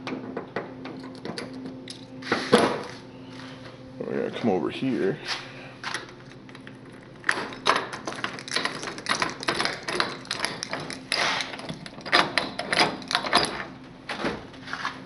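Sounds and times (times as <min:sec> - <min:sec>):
vending machine door lock rattling: 0:07.2 - 0:14.3.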